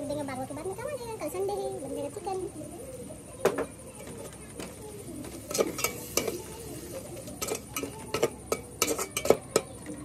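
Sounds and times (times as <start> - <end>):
metal spatula scraping cooking pot: 5.2 - 9.9.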